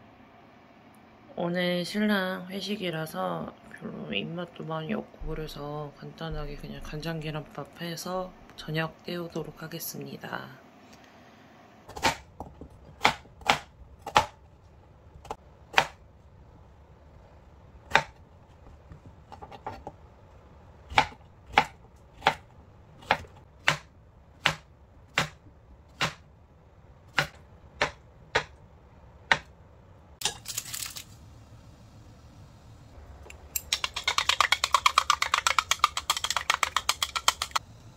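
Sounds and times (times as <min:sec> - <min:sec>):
knife chopping on cutting board: 0:11.9 - 0:14.4, 0:15.2 - 0:16.0, 0:17.9 - 0:18.2, 0:20.9 - 0:22.4, 0:23.0 - 0:26.2, 0:27.1 - 0:28.6, 0:29.3 - 0:29.5.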